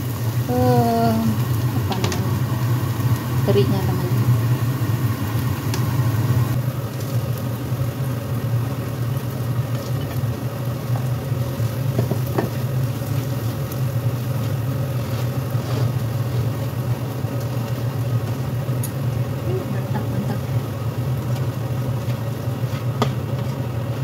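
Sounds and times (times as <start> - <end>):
food sizzling in a pan: 0.0 - 24.0
steady low hum: 0.0 - 24.0
spatula stirring and scraping: 14.4 - 16.7, 21.3 - 23.6.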